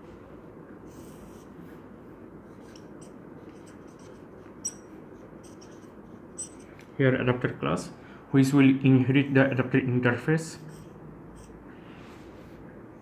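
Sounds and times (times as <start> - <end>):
low room hum: 0.0 - 13.0
marker writing on whiteboard: 2.4 - 6.7.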